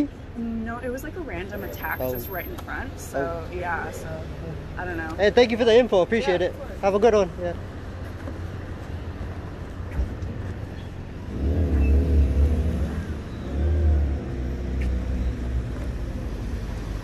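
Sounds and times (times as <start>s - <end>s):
low traffic rumble: 0.0s - 17.0s
vehicle engine passing: 11.1s - 17.0s.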